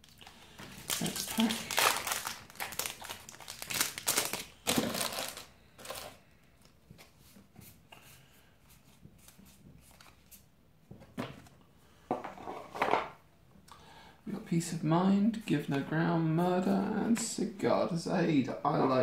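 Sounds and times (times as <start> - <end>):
foil wrapper crinkling: 0.0 - 6.2.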